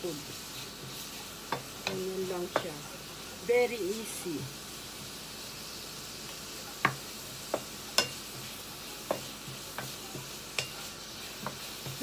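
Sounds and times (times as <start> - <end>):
vegetables sizzling in oil: 0.0 - 12.0
wooden spatula knocking on pan: 1.5 - 2.8, 6.8 - 10.7.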